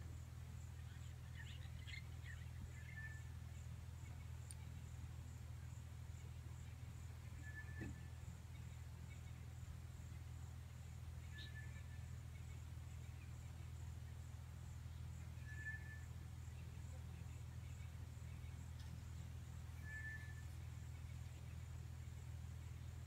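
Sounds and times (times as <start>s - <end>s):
low hum: 0.0s - 23.0s
high whistled call: 19.8s - 20.4s.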